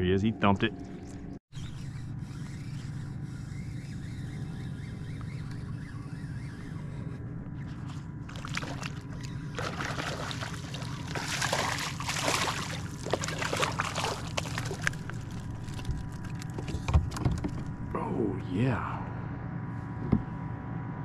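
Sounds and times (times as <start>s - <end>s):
water sloshing against a hull: 7.5s - 17.9s
fish splashing at the surface: 8.3s - 16.4s.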